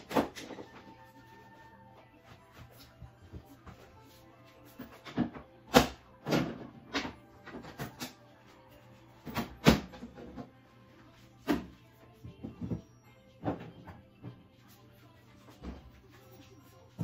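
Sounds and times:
faint background music: 0.0 - 17.0.

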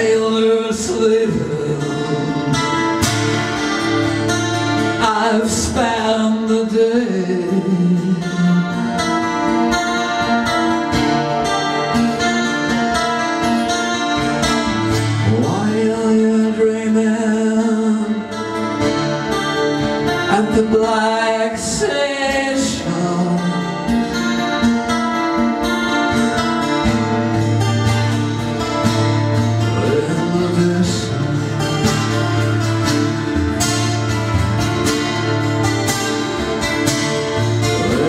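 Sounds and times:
person singing: 0.0 - 25.2, 29.2 - 38.0
electric guitar chords: 0.0 - 38.0.

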